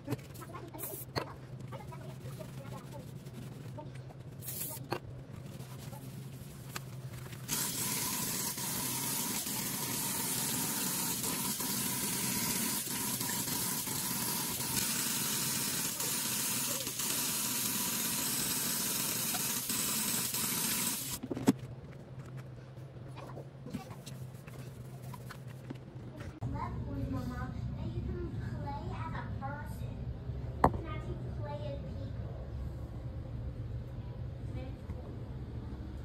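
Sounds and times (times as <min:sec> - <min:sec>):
tap water running into sink: 0:07.5 - 0:21.2.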